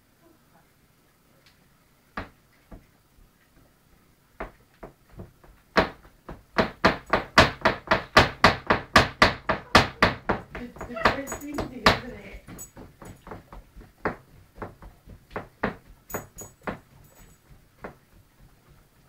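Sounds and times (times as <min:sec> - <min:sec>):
dog leg knocking on plastic bed: 0:04.4 - 0:19.0.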